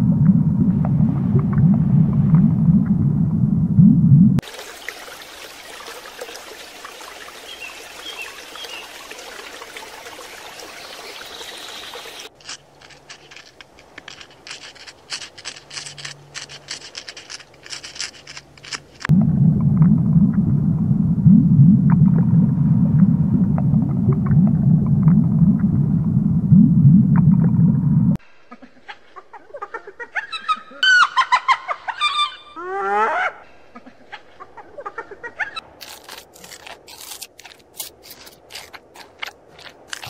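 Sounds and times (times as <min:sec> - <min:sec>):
deep underwater rumble: 0:00.0 - 0:04.4, 0:19.1 - 0:28.2
faint hum: 0:00.0 - 0:04.4, 0:10.6 - 0:28.2
steady water hiss: 0:04.4 - 0:19.1.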